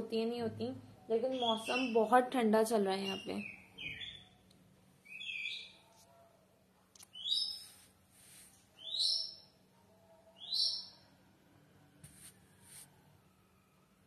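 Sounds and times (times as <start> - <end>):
bird chirping: 1.1 - 2.2, 3.0 - 5.9, 7.0 - 7.8, 8.8 - 9.6, 10.4 - 11.1.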